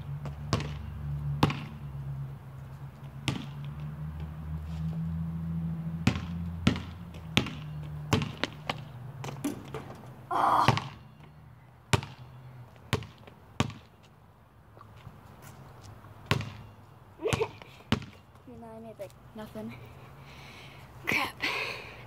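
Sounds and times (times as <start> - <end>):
basketball bouncing on concrete: 0.2 - 1.8, 3.2 - 4.3, 6.0 - 11.3, 11.9 - 12.3, 12.9 - 13.9, 16.2 - 18.2
ball rattling on hoop: 9.2 - 10.2.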